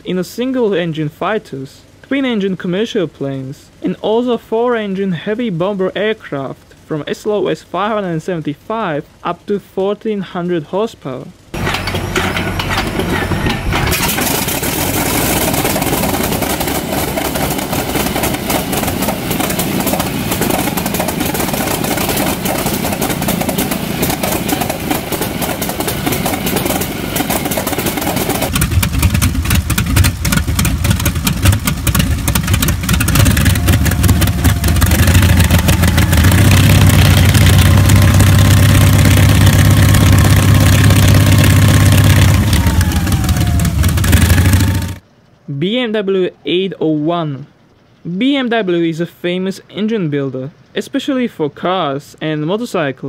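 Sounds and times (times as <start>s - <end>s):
radial aircraft engine running: 11.3s - 45.0s.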